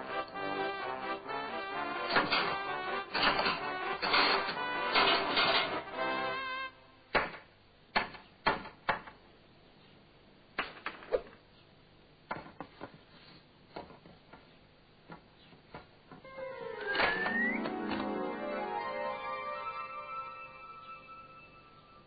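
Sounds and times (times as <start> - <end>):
sharp wooden knocks and clatters: 2.1 - 5.8, 7.1 - 9.2, 10.6 - 11.3.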